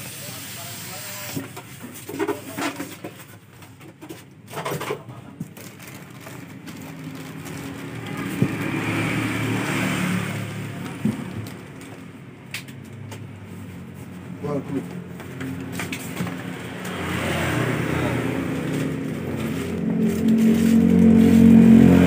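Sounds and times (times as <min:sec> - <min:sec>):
plastic bag rustling: 0:05.4 - 0:09.3, 0:18.1 - 0:22.0
styrofoam scraping and squeaking: 0:05.6 - 0:08.8, 0:18.8 - 0:21.8.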